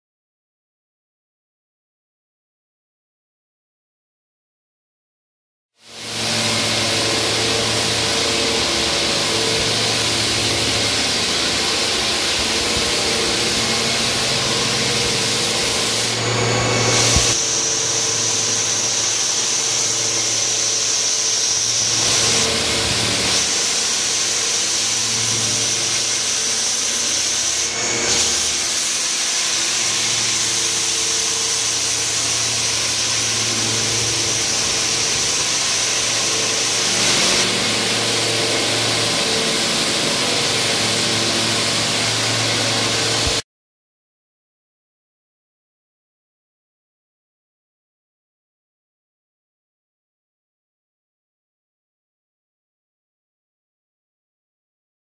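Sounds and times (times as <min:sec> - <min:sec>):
floor sander grinding wood: 0:05.8 - 0:43.4
high whine: 0:05.9 - 0:26.2, 0:29.6 - 0:43.4.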